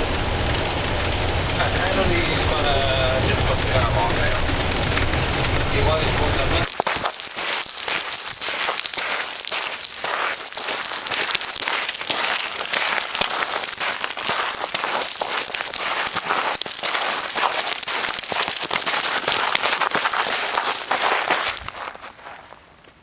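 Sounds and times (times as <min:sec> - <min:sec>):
footsteps on gravel: 0:06.6 - 0:23.0.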